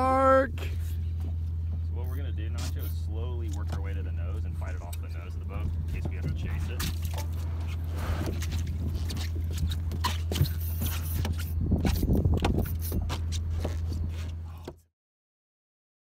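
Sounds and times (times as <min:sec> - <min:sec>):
low hum: 0:00.0 - 0:14.9.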